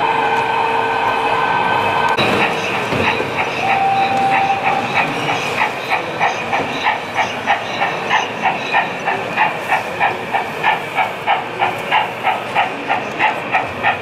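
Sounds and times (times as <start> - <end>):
model train wheels clicking: 2.4 - 14.0
brief steady tone: 3.6 - 4.8.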